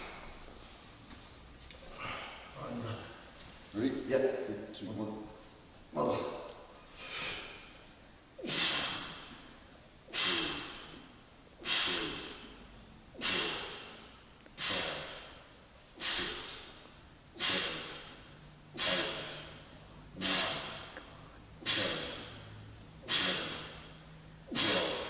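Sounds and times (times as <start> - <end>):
man breathing forcefully: 0.0 - 0.6, 1.8 - 3.4, 6.2 - 25.0.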